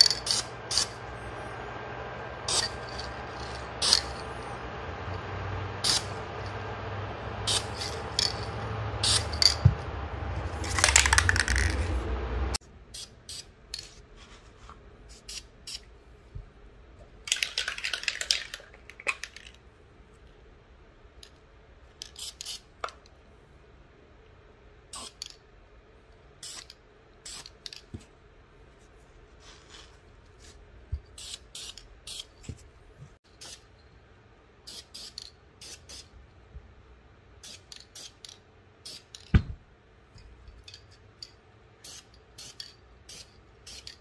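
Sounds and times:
spray-paint can hissing: 0.0s - 1.0s, 2.5s - 2.8s, 5.8s - 6.1s, 7.5s - 8.0s, 9.0s - 9.4s, 24.9s - 25.2s, 26.4s - 27.5s, 31.2s - 32.3s, 34.7s - 36.1s, 41.8s - 44.0s
sharp clicks and rattles: 17.2s - 19.6s.

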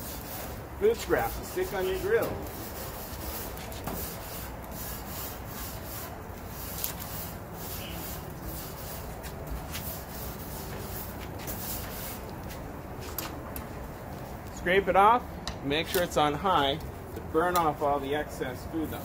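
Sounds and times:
grill brush scrubbing metal grates: 0.0s - 12.6s.

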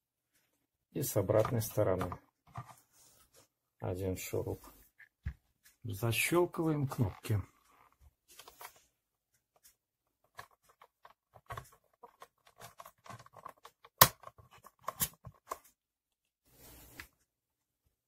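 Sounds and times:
small plastic clicks and rubbing: 9.4s - 15.8s
sharp plastic snap: 13.8s - 15.2s.

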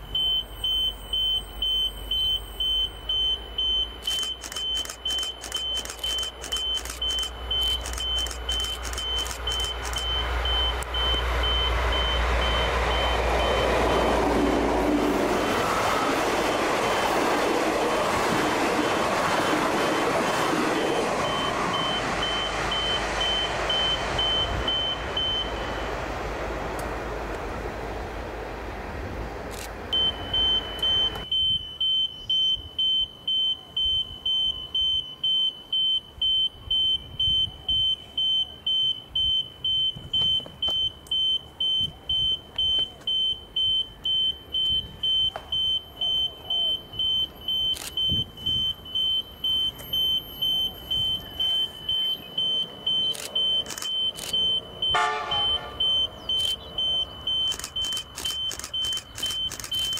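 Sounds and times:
electronic warning beeper: 0.0s - 14.1s, 20.7s - 25.9s, 29.5s - 59.9s
train rumble: 0.0s - 31.4s, 39.1s - 59.9s
diesel locomotive horn blast: 54.8s - 56.0s.

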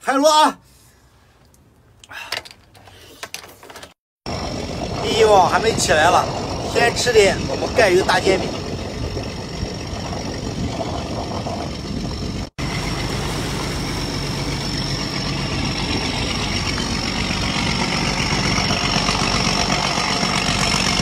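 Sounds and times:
boat engine running with whine: 4.3s - 21.0s.

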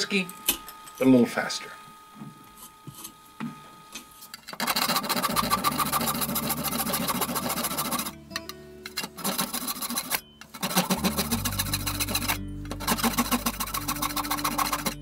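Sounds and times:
rapid saw rasping: 4.6s - 8.2s, 9.0s - 15.0s.

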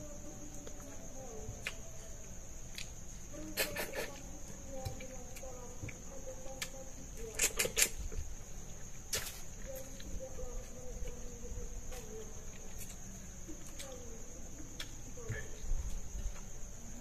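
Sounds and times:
crickets chirring: 0.0s - 17.0s
eating smacks and clicks: 6.6s - 8.0s.

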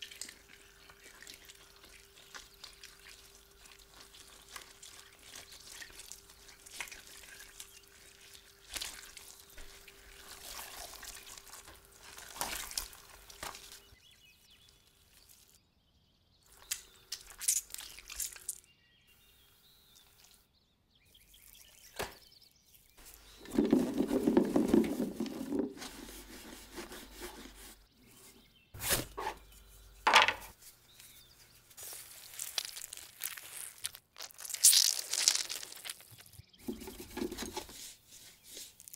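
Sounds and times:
juice dripping into metal strainer: 0.0s - 13.8s
oranges squeezed by hand: 23.1s - 27.7s, 31.8s - 36.4s.

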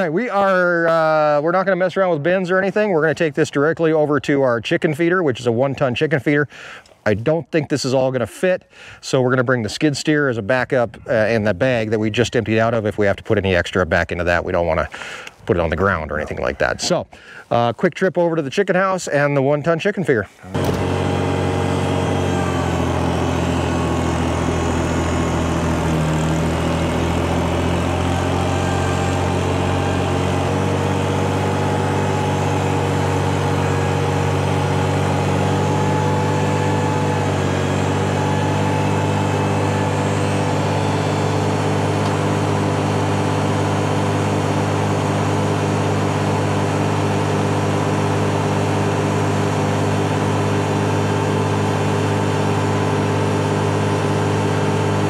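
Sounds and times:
tractor engine running: 20.5s - 55.0s.

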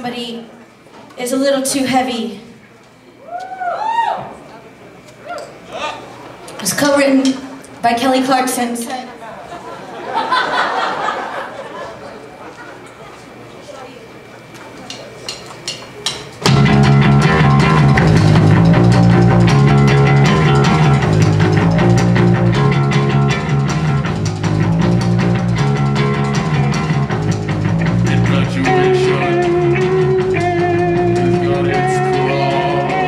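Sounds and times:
live rock band playing: 16.4s - 33.0s
high held melody: 16.5s - 33.0s.

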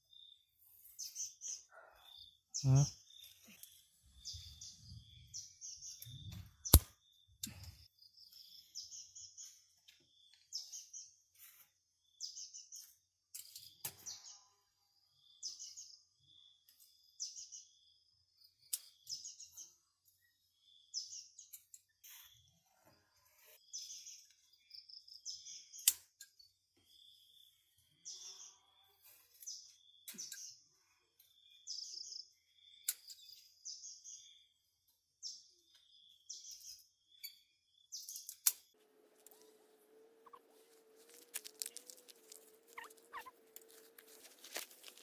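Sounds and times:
bird chirping: 0.0s - 11.3s, 23.6s - 45.0s.

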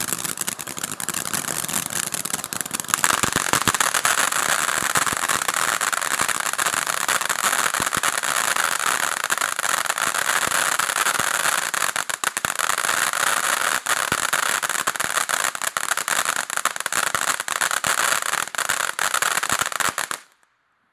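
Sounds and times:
sharp crackles: 0.0s - 11.3s
firework fountain hissing: 0.0s - 20.2s.

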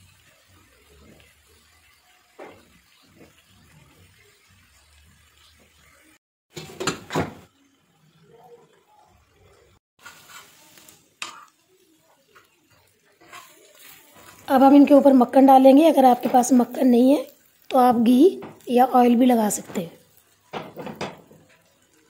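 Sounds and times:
metal utensils clattering on griddle: 20.4s - 21.8s.

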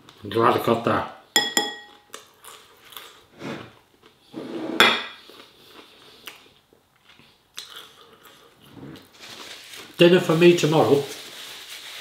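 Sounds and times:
cutlery clinking on plate: 1.4s - 2.1s.

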